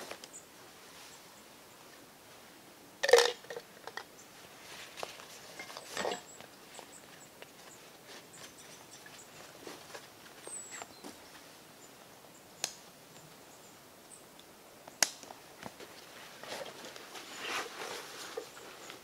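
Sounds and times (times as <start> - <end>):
backpack fabric rustling: 16.1 - 18.9.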